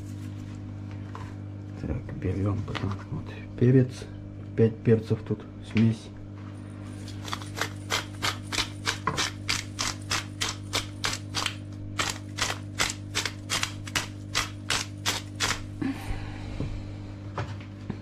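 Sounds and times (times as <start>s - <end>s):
pepper grinder clicking: 7.1s - 15.7s.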